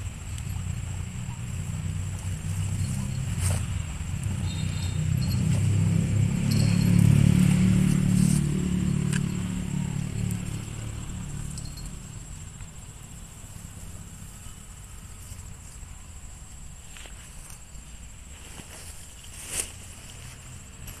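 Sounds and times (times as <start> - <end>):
motor vehicle passing: 0.0 - 15.8.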